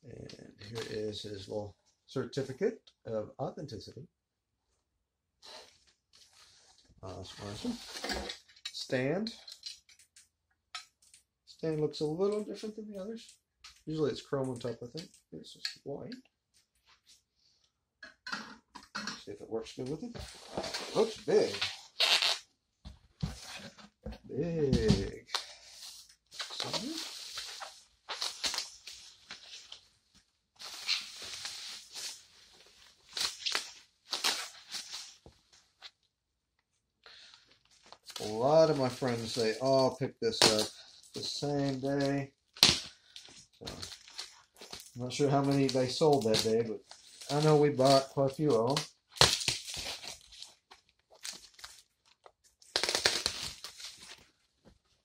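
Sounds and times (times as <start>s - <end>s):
bubble wrap crinkling: 25.2s - 30.0s, 30.6s - 36.0s, 40.3s - 54.4s
packing material tearing and rustling: 30.6s - 35.2s, 48.7s - 54.3s.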